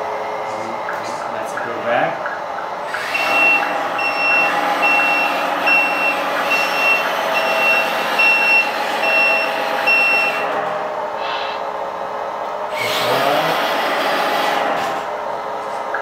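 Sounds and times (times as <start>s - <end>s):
simulated diesel engine: 2.8s - 16.0s
reversing alarm beeping: 3.0s - 10.6s.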